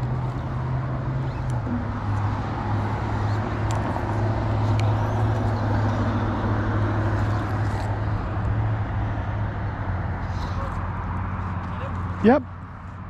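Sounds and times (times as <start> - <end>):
traffic engine drone: 0.0 - 13.0.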